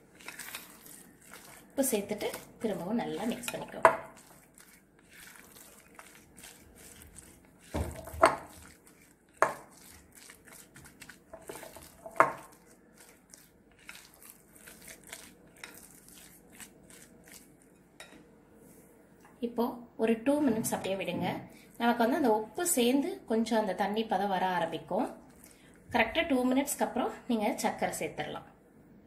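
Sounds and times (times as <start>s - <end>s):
spatula scraping and squishing: 0.0s - 18.2s.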